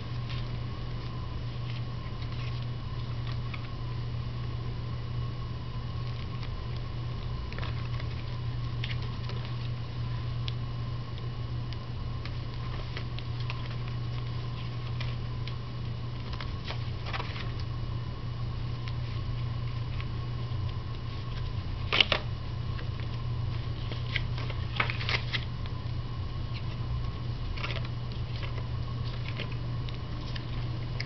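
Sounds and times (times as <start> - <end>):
paper rustling: 0.0 - 3.8, 6.0 - 10.2, 12.2 - 17.7, 18.8 - 25.5, 26.5 - 31.0
low hum: 0.0 - 31.0.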